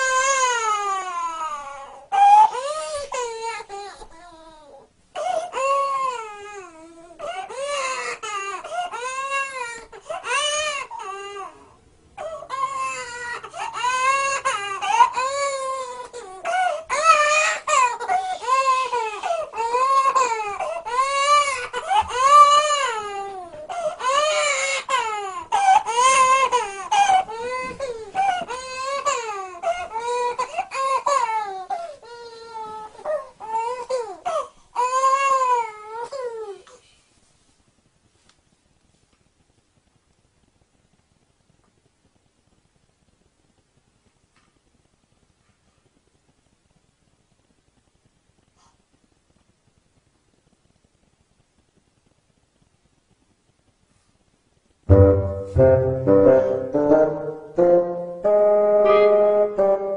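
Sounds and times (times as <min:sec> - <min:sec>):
toddler girl crying: 0:00.0 - 0:36.6.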